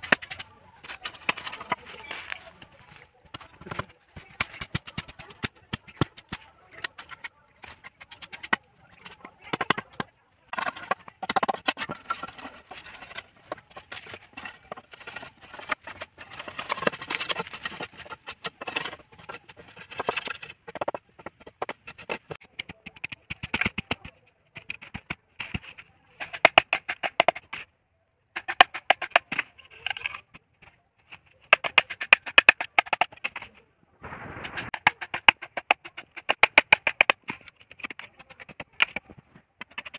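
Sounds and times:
machete scraping and cutting bamboo: 0:00.0 - 0:20.6.

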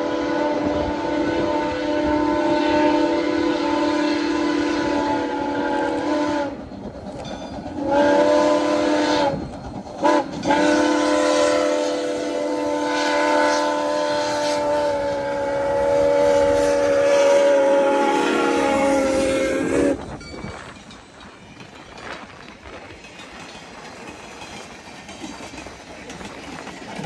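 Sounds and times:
steam whistle blasts: 0:00.0 - 0:06.6, 0:07.8 - 0:09.4, 0:10.0 - 0:20.2.

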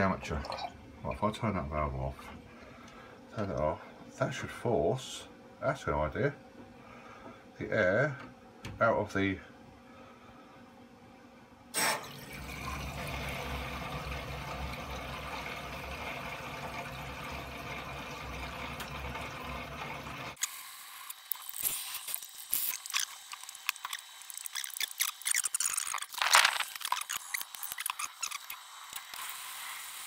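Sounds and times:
water rushing through pipes: 0:00.0 - 0:01.3, 0:11.8 - 0:20.4
pump humming: 0:11.8 - 0:30.0.

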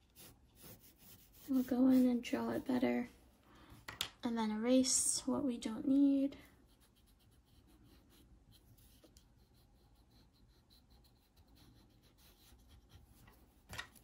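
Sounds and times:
pencil scratching on paper: 0:00.0 - 0:03.0, 0:06.5 - 0:14.0.

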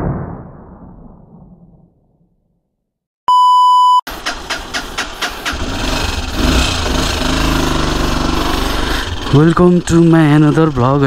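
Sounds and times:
electronic beep: 0:03.3 - 0:04.1
motorcycle engine starting: 0:04.1 - 0:11.0.

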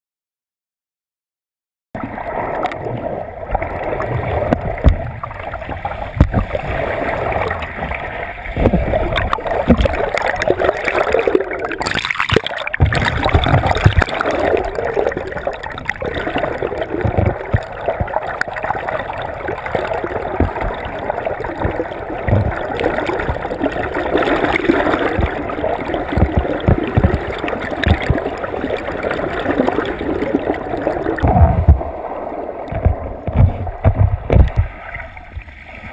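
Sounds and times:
underwater churning water: 0:02.0 - 0:35.9
low thumps: 0:17.0 - 0:18.2, 0:21.6 - 0:23.6, 0:24.6 - 0:28.3, 0:31.2 - 0:32.0, 0:32.7 - 0:34.8.

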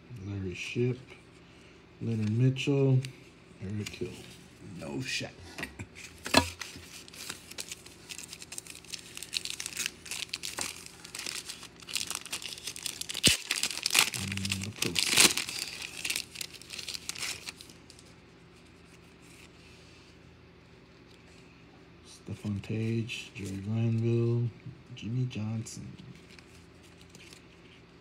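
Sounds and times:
wrapper tearing and crinkling: 0:06.5 - 0:18.1, 0:26.2 - 0:27.8.

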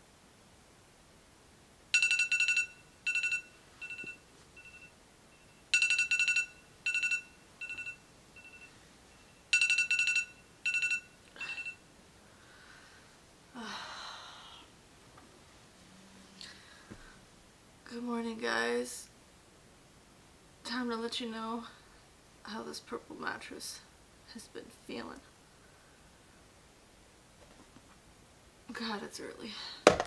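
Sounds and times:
electronic alarm beeping: 0:02.0 - 0:11.8
woman sighing sleepily: 0:13.5 - 0:14.7.

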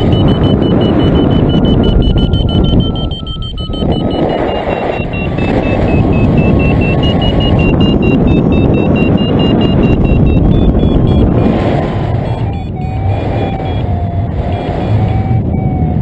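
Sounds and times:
variometer beeping rapidly: 0:00.0 - 0:16.0
wind rushing over microphone: 0:00.0 - 0:16.0.

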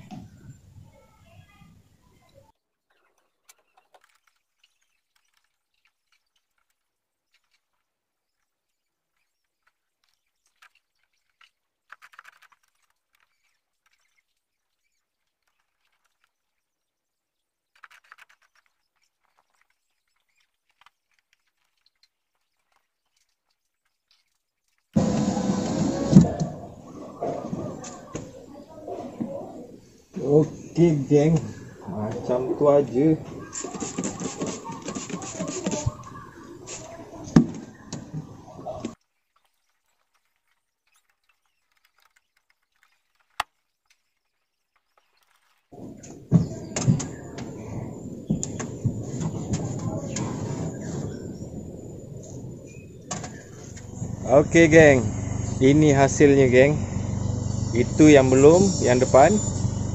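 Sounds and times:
faint crackling clicks: 0:17.6 - 0:25.0, 0:33.3 - 0:52.4
cloth wiping: 0:33.4 - 0:36.0.

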